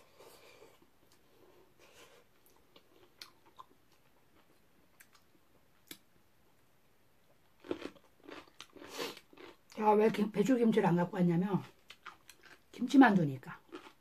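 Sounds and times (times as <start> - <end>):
chewing: 0.3 - 5.3, 7.6 - 9.8, 11.6 - 12.8, 13.6 - 14.0.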